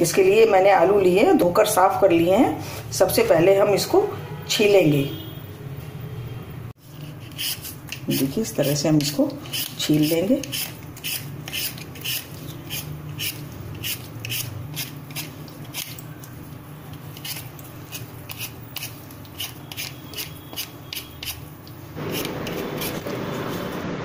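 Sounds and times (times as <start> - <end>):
vegetable peeler scraping potato: 6.8 - 23.8.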